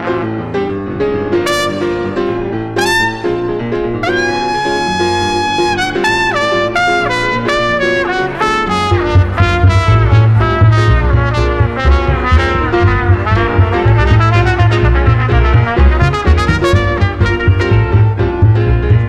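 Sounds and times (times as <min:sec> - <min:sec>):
trumpet solo: 0:00.0 - 0:00.7, 0:01.4 - 0:18.3
piano chords: 0:00.0 - 0:19.0
plucked double bass: 0:04.0 - 0:19.0.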